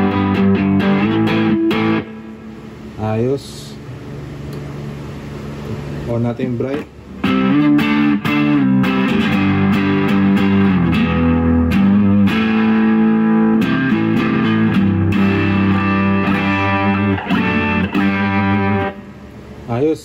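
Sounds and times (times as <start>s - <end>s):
overdriven electric guitar: 0.0s - 3.0s, 7.2s - 19.6s.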